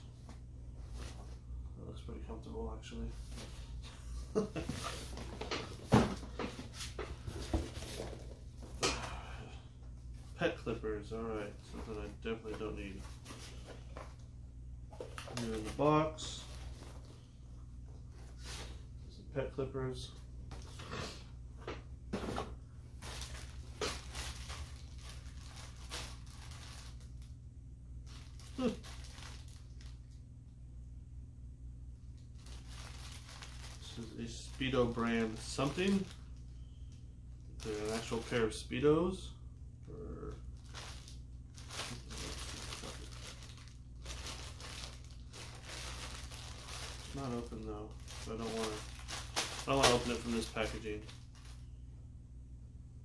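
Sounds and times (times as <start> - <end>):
steady low hum: 0.0 - 53.0
plastic bag crinkling: 11.2 - 14.2, 14.9 - 17.2, 23.0 - 27.3, 28.0 - 30.2, 32.2 - 36.5, 37.6 - 38.5, 40.2 - 51.7.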